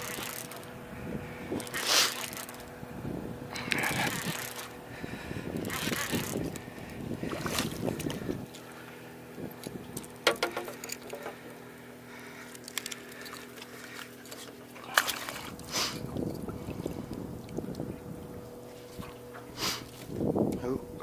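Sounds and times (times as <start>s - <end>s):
hook and lure rattling: 0.0s - 0.6s, 1.6s - 2.7s, 3.6s - 4.7s, 5.6s - 6.6s, 10.0s - 11.4s, 12.5s - 15.2s
fish splashing into water: 14.8s - 16.0s.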